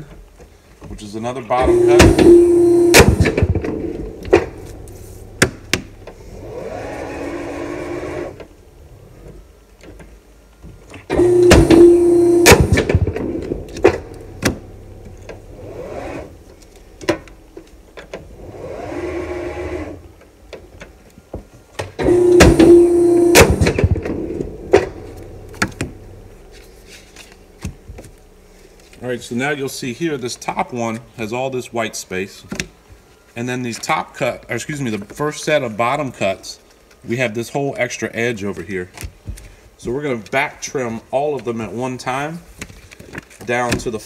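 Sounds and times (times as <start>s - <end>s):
machine whirring: 1.6s - 9.4s, 10.9s - 20.2s, 21.8s - 29.0s.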